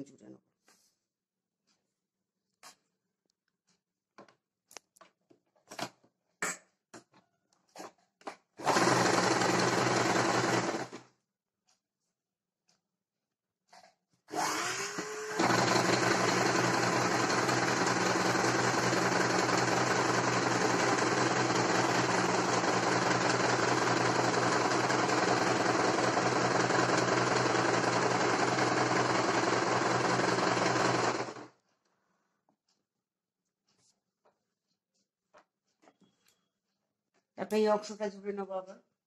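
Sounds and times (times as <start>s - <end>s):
sewing machine running: 8.6s - 11.1s, 14.3s - 31.5s.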